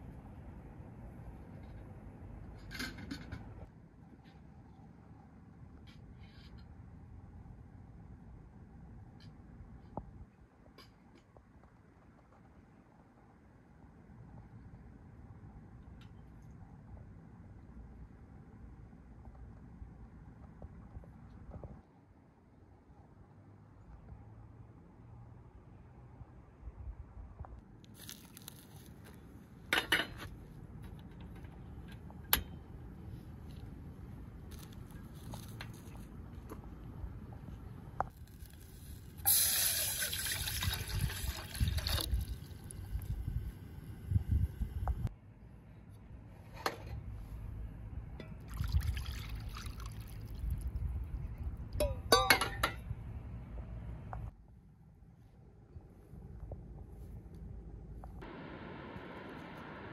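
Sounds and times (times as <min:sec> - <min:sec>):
water pouring into bowl: 0:39.3 - 0:42.5, 0:48.5 - 0:50.7
metal pot clattering: 0:51.8 - 0:52.8.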